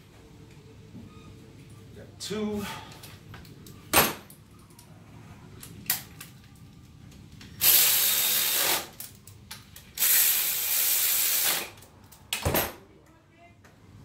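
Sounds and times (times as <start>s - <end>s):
electric ratchet spinning: 7.6s - 9.0s, 10.0s - 11.8s.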